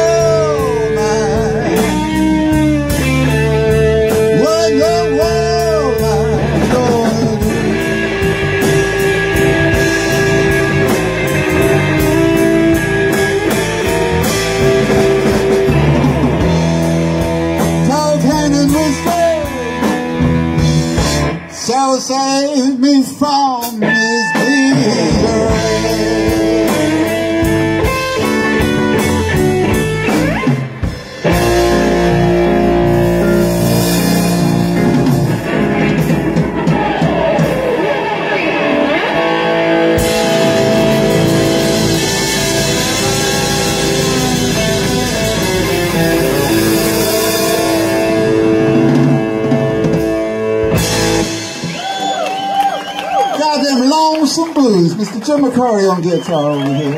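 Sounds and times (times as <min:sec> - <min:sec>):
person singing: 0:00.0 - 0:02.6, 0:04.1 - 0:08.3, 0:17.8 - 0:20.0, 0:20.6 - 0:27.5, 0:40.0 - 0:48.3
bending guitar notes: 0:00.0 - 0:22.2, 0:23.2 - 0:53.2
blues-rock band playing: 0:00.0 - 0:56.9.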